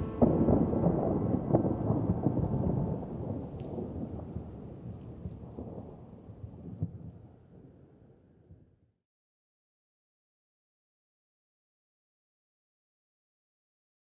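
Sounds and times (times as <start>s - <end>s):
thunder rumbling: 0.0s - 8.0s
thunder crackles: 0.0s - 8.1s.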